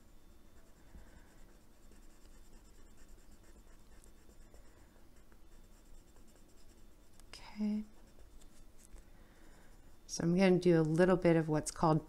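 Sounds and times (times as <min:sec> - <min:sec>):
pencil scratching on paper: 0:00.5 - 0:07.2, 0:07.8 - 0:08.9.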